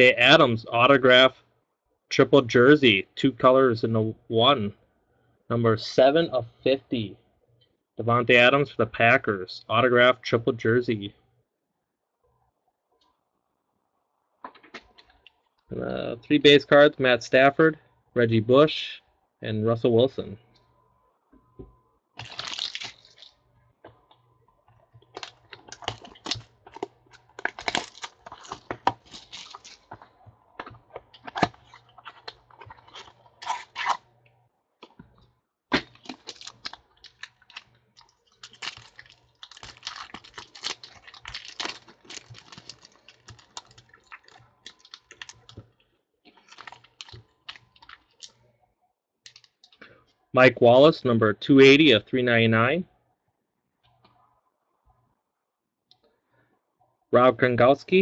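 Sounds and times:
packaging rustling and tearing: 22.2 - 23.4, 25.0 - 34.0, 35.8 - 45.6, 46.4 - 48.3.

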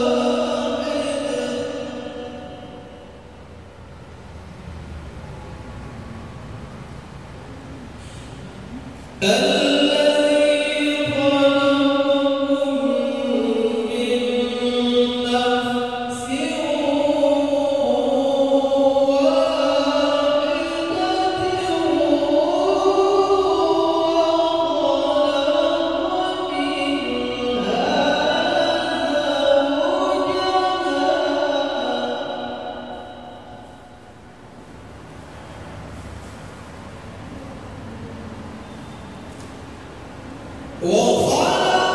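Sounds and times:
man chanting recitation: 0.0 - 3.5, 9.1 - 34.2, 40.8 - 41.9.

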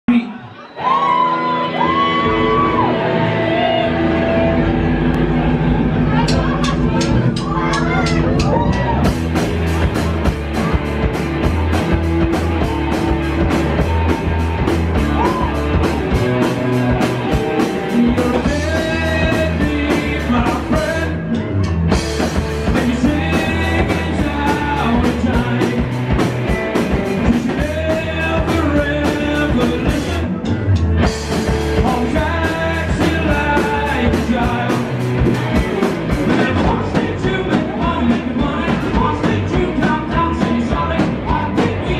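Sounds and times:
rock band playing: 0.8 - 41.9
man singing: 17.0 - 21.5, 22.3 - 30.6, 31.4 - 41.9.

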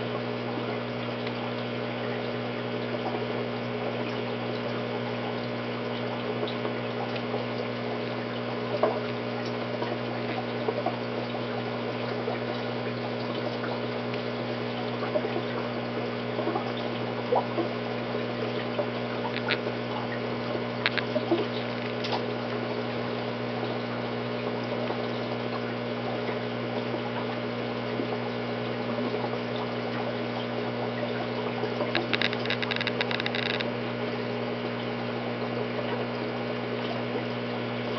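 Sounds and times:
electric hum: 0.0 - 37.9
water trickling and splashing: 0.3 - 32.5, 33.8 - 37.9
small pops: 19.3 - 19.6
quick ticks: 31.9 - 33.7.

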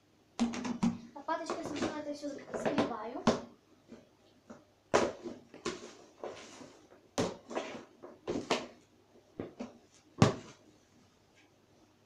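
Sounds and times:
plastic scoop knocking and scraping: 0.4 - 8.8.

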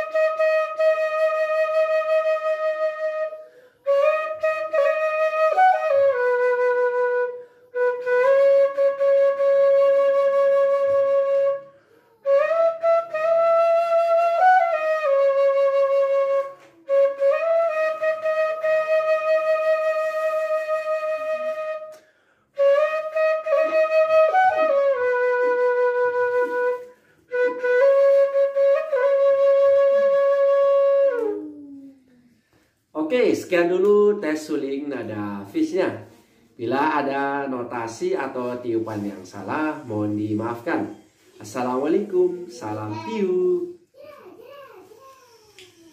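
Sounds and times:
bamboo flute solo: 0.0 - 22.0, 22.6 - 32.2.

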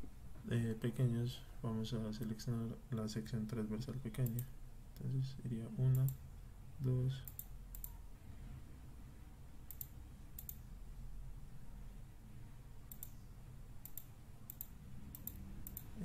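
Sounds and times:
faint low hum: 0.0 - 16.0
computer mouse clicking: 4.2 - 4.5, 5.9 - 6.2, 7.2 - 8.0, 9.7 - 10.6, 12.9 - 13.2, 13.8 - 16.0.

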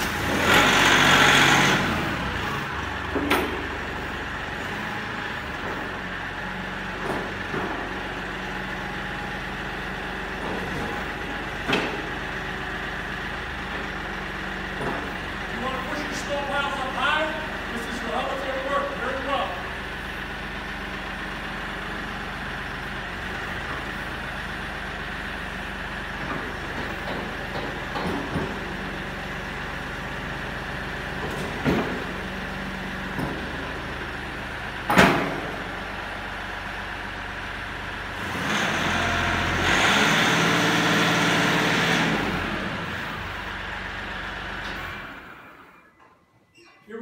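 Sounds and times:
loader hydraulics: 0.0 - 16.4
tractor diesel engine running: 0.0 - 45.8
clunks: 3.1 - 4.0, 6.8 - 8.2, 10.3 - 12.4, 13.5 - 16.8, 26.2 - 28.8, 31.2 - 32.2, 33.0 - 33.7.

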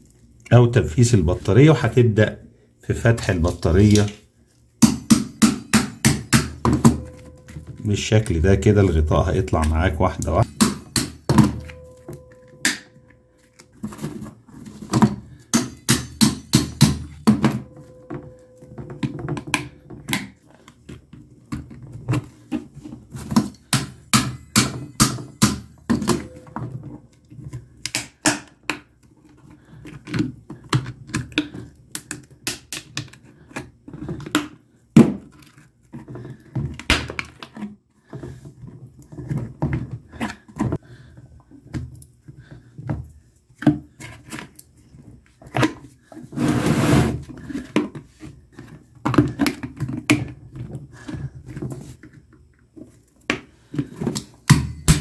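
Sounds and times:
short scraping rasp: 46.3 - 47.2.

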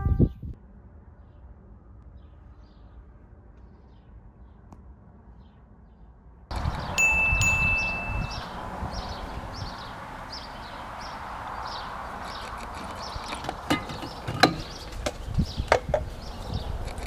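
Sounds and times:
bird chirping: 5.4 - 17.0.

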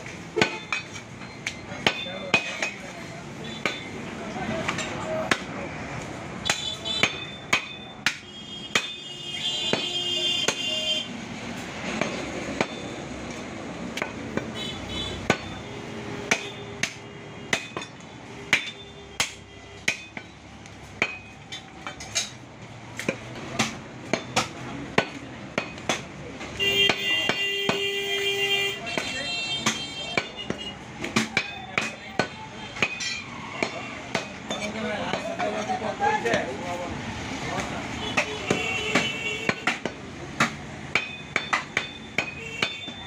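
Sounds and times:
cleaver chopping on wooden block: 6.5 - 9.0, 15.2 - 15.6, 16.3 - 20.3, 23.0 - 26.1, 26.9 - 27.8, 28.9 - 33.0, 33.6 - 35.4, 38.1 - 43.0.

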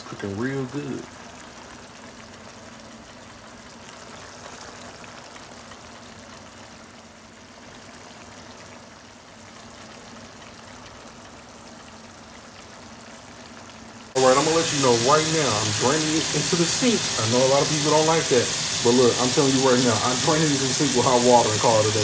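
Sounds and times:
meat sizzling in a skillet: 1.0 - 22.0.

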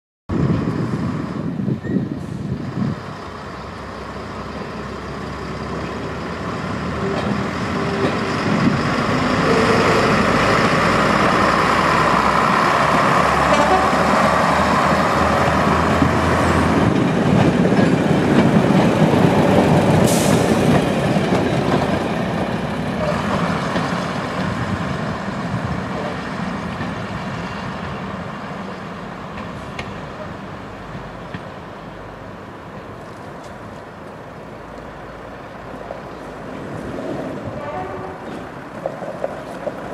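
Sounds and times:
diesel train engines: 0.3 - 39.9
wheel and rail noise: 0.3 - 39.9.

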